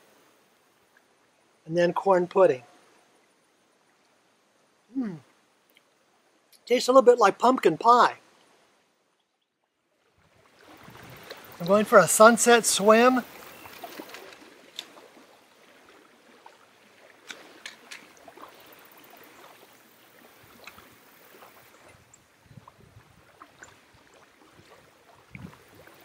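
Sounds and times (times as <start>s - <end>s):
lake water lapping: 8.0s - 26.0s.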